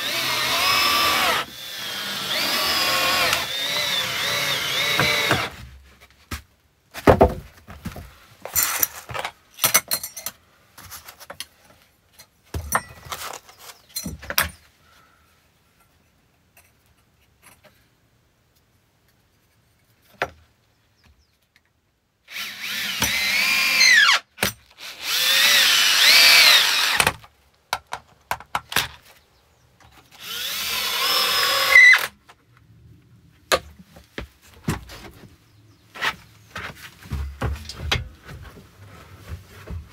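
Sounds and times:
cordless drill driving screws: 0:00.0 - 0:05.6, 0:22.3 - 0:24.2, 0:24.8 - 0:27.2, 0:30.2 - 0:32.1
wooden boards knocking: 0:07.0 - 0:08.0.

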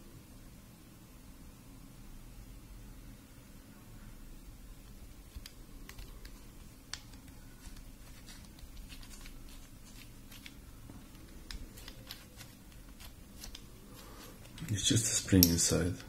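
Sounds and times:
screwdriver parts clicking and tapping: 0:05.3 - 0:13.7, 0:15.3 - 0:16.0.

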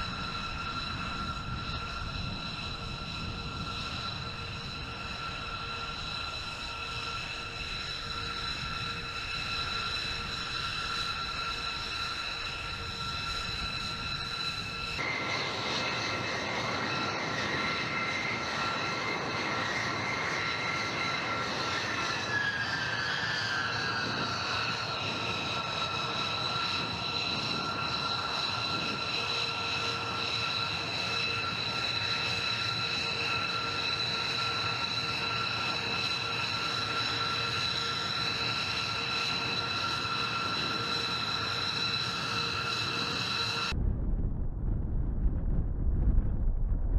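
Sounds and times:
jet engine whine over rumble: 0:00.0 - 0:46.9.

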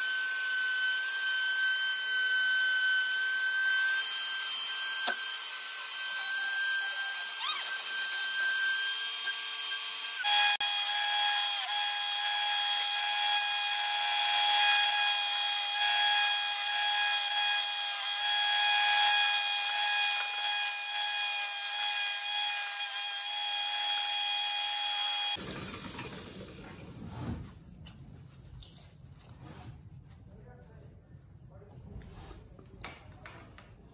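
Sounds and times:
power saw whining: 0:00.0 - 0:26.8.

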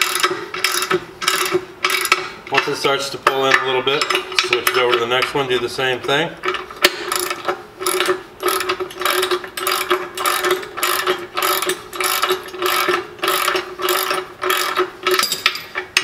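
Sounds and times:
socket ratchet clicking: 0:06.8 - 0:15.6.

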